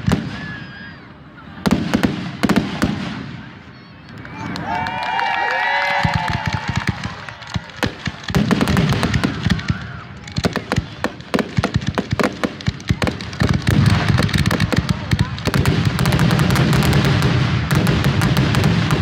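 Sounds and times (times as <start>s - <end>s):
fireworks shells launching: 6.0s - 19.0s
rapid crackling pops: 6.0s - 19.0s.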